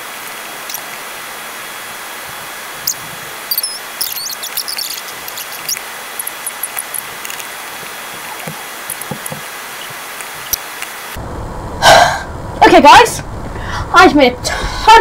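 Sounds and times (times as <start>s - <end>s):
steady hiss: 0.0s - 11.2s
rapid mouse clicks: 0.7s - 1.0s, 2.9s - 11.0s.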